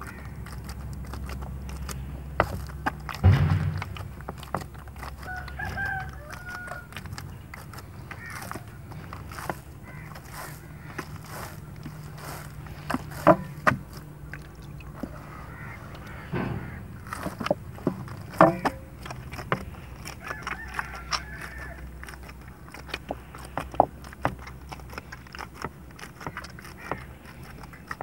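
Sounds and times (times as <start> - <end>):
dough squelching and slapping: 0.0 - 28.0.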